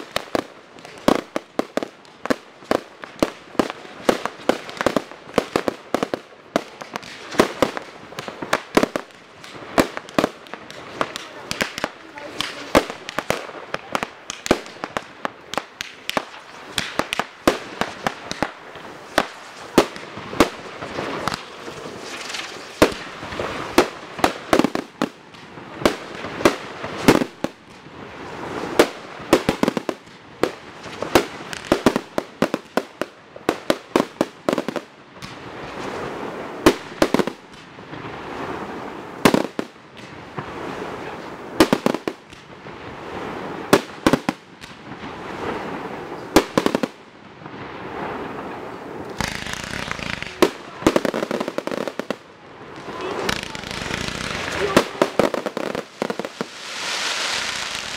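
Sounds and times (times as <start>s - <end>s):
fireworks crackling: 0.0s - 57.9s
firework shells bursting: 6.8s - 27.5s, 49.1s - 57.9s.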